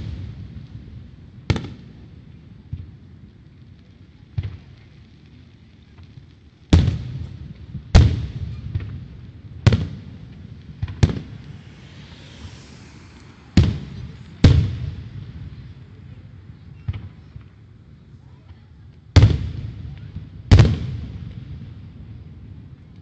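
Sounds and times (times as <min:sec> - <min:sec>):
small fireworks pops: 0:00.0 - 0:23.0
faint hiss: 0:03.3 - 0:18.4
fireworks booms: 0:06.7 - 0:16.1, 0:19.2 - 0:22.0.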